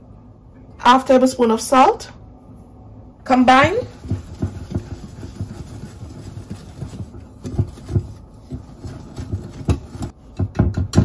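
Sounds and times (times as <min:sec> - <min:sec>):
whisk tapping glass bowl: 0:03.6 - 0:11.0.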